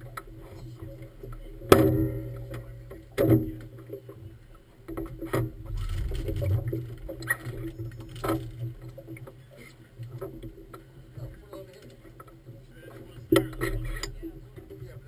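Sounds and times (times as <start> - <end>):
low steady hum: 0.0 - 15.0
hollow knocks of boat bumping dock: 1.6 - 3.8.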